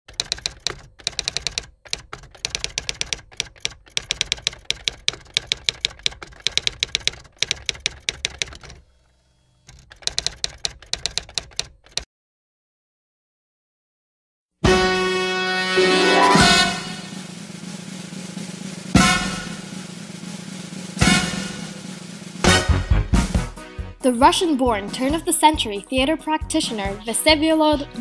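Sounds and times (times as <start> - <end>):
typewriter keys clacking: 0.1 - 8.8, 9.7 - 12.1.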